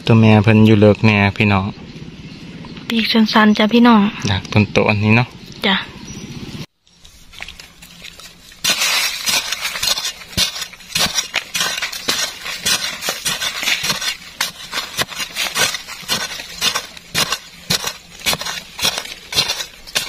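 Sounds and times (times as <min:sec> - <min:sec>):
metal tool chopping into earth: 0:08.6 - 0:20.0.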